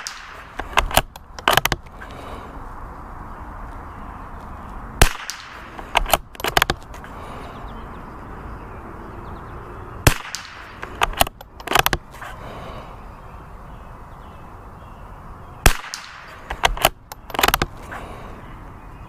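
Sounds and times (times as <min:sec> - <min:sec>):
rifle shots: 0:00.0 - 0:01.7, 0:05.0 - 0:06.7, 0:10.0 - 0:12.0, 0:15.6 - 0:17.7.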